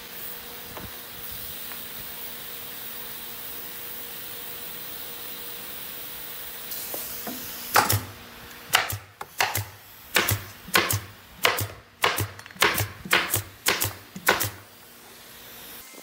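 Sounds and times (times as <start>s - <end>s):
pneumatic staple gun shots: 6.7s - 14.7s.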